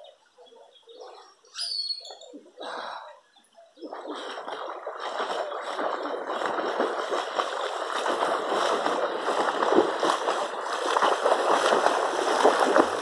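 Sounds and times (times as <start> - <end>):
swimmer splashing water: 3.8 - 13.0.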